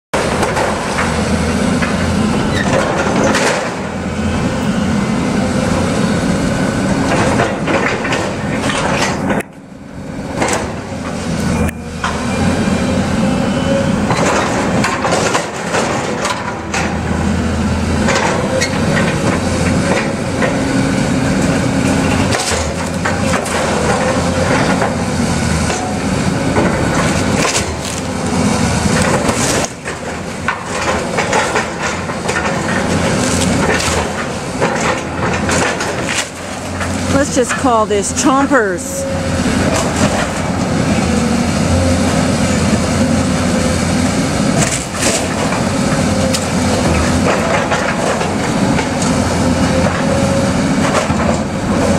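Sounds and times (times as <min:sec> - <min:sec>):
excavator diesel engine running: 0:00.2 - 0:51.9
timber cracking and splintering: 0:26.6 - 0:37.0.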